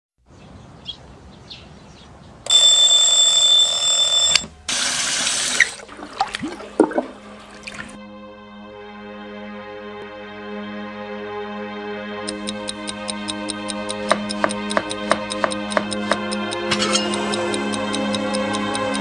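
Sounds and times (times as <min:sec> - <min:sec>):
bell alarm clock ringing: 0:02.5 - 0:04.4, 0:16.4 - 0:19.0
tap water running: 0:04.4 - 0:08.0
soft music: 0:06.8 - 0:19.0.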